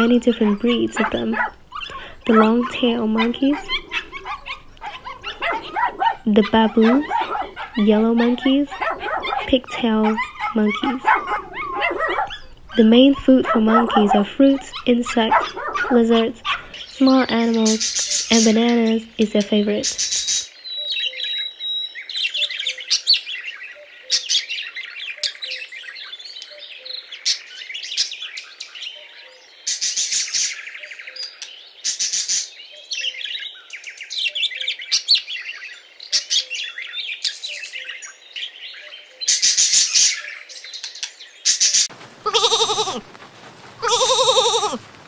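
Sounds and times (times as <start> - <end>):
parrots chirping: 0.2 - 19.0, 41.5 - 43.1, 43.8 - 44.8
harsh parrot calls: 0.4 - 17.0, 41.6 - 43.1, 43.8 - 44.8
lamb bleating: 42.2 - 43.1, 43.8 - 44.8.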